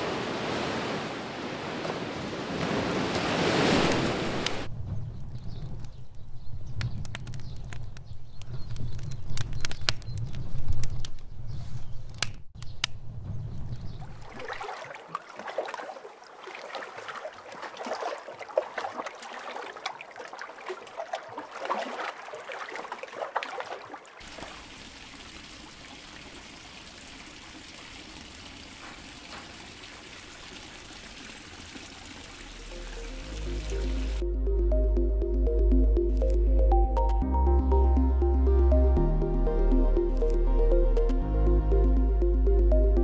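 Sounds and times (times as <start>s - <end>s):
water lapping and splashing: 0.0s - 4.7s, 13.5s - 34.2s
fire crackling: 3.9s - 11.4s
water pouring into a pool: 14.1s - 34.2s.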